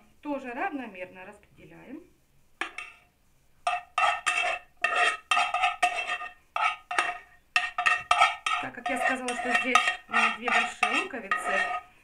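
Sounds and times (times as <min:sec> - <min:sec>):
metal utensil scraping a pan: 0:02.6 - 0:12.0.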